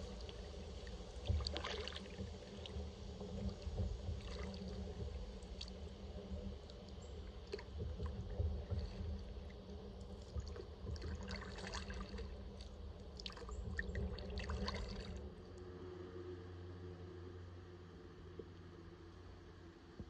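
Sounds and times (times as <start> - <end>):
paddle splashing: 0.0 - 15.2
steady low rumble: 0.0 - 20.0.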